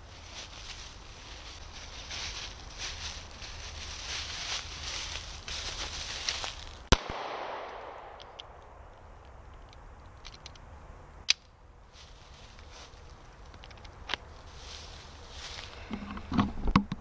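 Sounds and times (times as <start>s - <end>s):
pistol shots: 6.9s - 8.4s.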